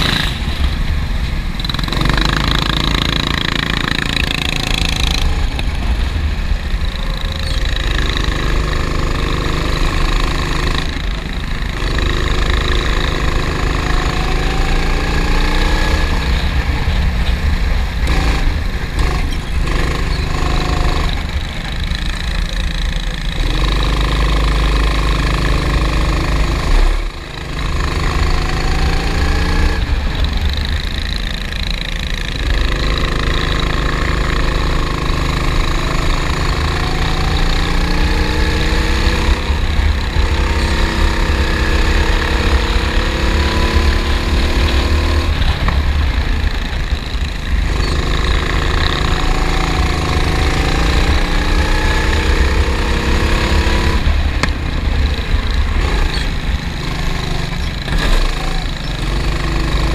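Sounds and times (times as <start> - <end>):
kart engine at full throttle: 0.0 - 59.9.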